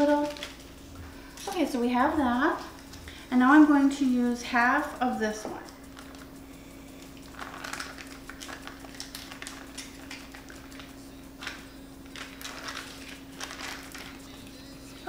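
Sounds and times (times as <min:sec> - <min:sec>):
foil wrapper crinkling: 0:00.0 - 0:01.6, 0:05.7 - 0:15.0
steady low hum: 0:00.0 - 0:15.0.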